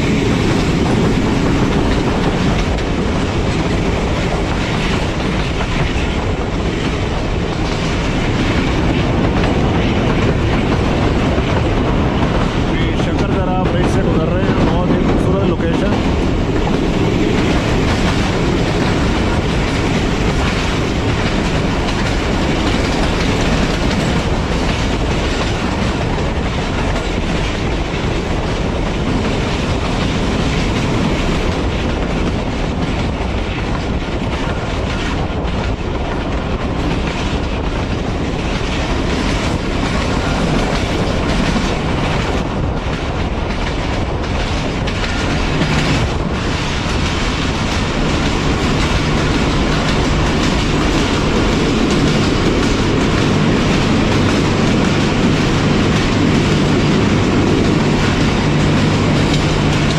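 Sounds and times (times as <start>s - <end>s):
train wheels rolling on rails: 0.0s - 59.9s.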